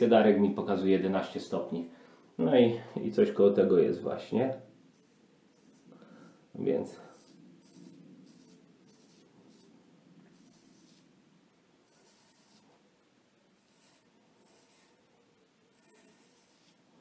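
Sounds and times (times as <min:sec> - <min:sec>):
razor scraping stubble: 0:04.9 - 0:09.7, 0:10.3 - 0:11.1, 0:11.8 - 0:12.8, 0:13.6 - 0:15.1, 0:15.7 - 0:16.9.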